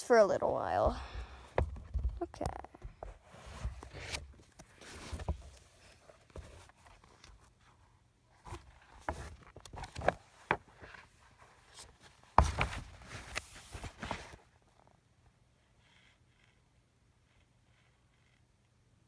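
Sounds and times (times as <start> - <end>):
phone rustling against fabric: 0.7 - 14.9.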